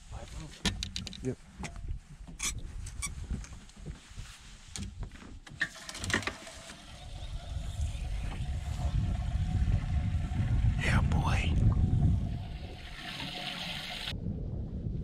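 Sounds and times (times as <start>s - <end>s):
low rumble with faint hum: 7.2s - 13.0s.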